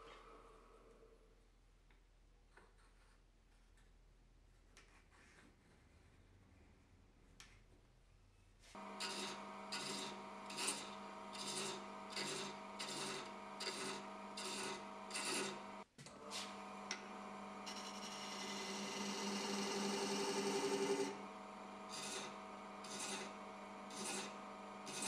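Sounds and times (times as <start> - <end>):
lathe motor humming: 8.8 - 25.0
thread chaser scraping wood: 8.8 - 25.0.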